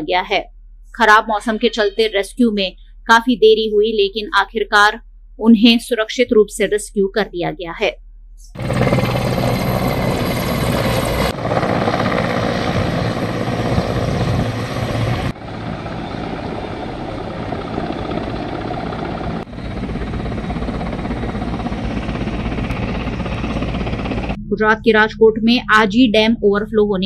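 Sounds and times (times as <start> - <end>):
helicopter rotor chop: 8.5 - 25.1.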